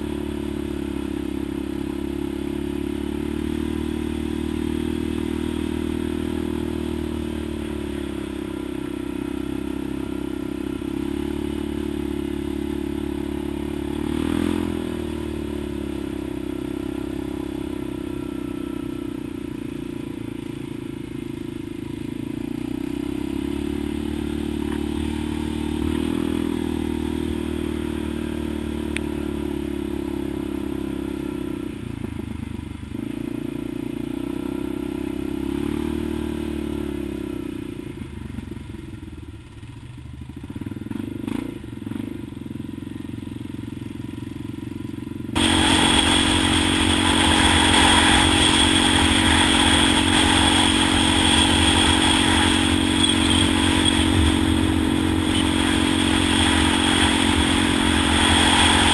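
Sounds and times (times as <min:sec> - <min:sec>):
atv engine running: 0:00.0 - 0:58.9
harsh rushing noise: 0:45.4 - 0:58.9.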